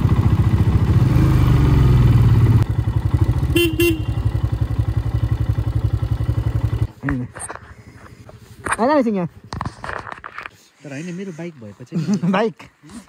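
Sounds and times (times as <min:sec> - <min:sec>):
motorcycle engine running: 0:00.0 - 0:09.7
horn short toots: 0:03.5 - 0:04.4.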